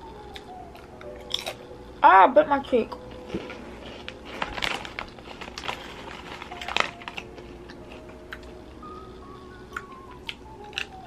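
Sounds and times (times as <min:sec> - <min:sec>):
chip being chewed: 0:00.1 - 0:01.7, 0:04.0 - 0:11.0
foil chip bag crinkling: 0:03.4 - 0:09.0.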